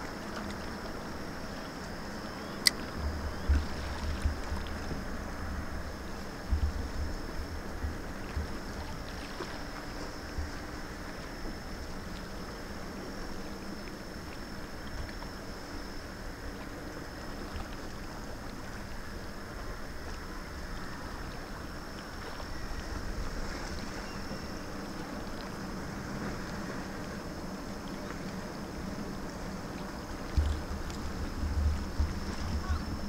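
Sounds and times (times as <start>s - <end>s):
faint high-pitched whine: 0.0s - 33.0s
wind buffeting microphone: 28.6s - 33.0s.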